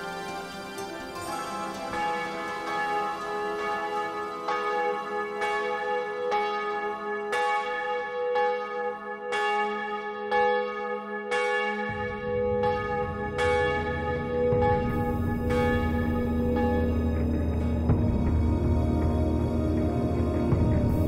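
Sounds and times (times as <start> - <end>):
church bell ringing: 0.0 - 19.1
low drone: 13.0 - 21.0.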